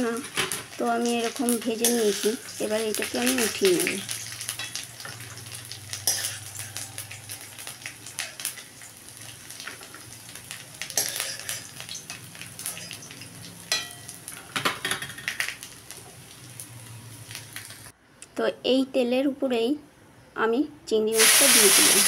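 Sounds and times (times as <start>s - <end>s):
coconut sizzling in oil: 0.0s - 18.0s, 21.2s - 22.0s
steel spoon scraping pan: 1.4s - 7.0s, 11.0s - 14.1s.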